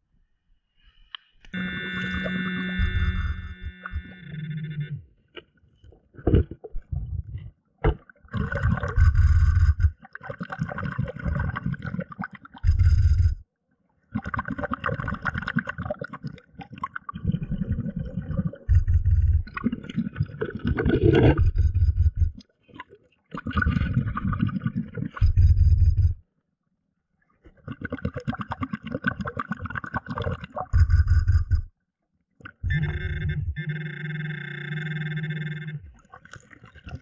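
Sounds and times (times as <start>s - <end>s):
stones scraping underwater: 5.4s - 10.0s, 18.2s - 22.5s
underwater gurgling water: 6.0s - 13.4s, 14.0s - 26.2s, 27.4s - 31.7s, 35.8s - 37.0s.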